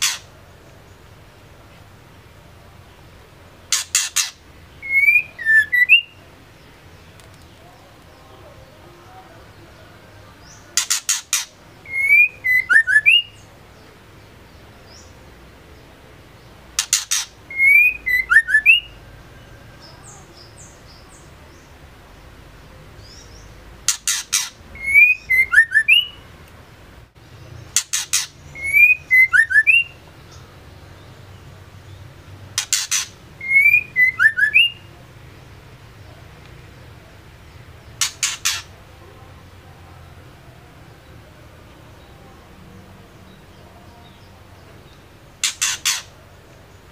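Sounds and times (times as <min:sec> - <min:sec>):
bird down-slurred whistles: 0:03.7 - 0:06.2, 0:10.8 - 0:13.4, 0:17.1 - 0:19.0, 0:24.3 - 0:26.2, 0:27.9 - 0:30.0, 0:32.6 - 0:34.8.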